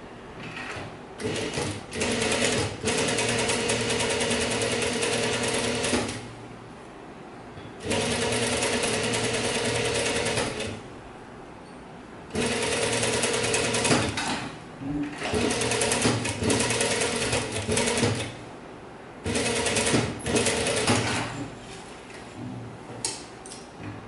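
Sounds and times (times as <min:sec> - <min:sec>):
sewing machine stitching: 0:00.4 - 0:06.2, 0:07.8 - 0:10.8, 0:12.4 - 0:14.4, 0:15.0 - 0:18.4, 0:19.2 - 0:21.3.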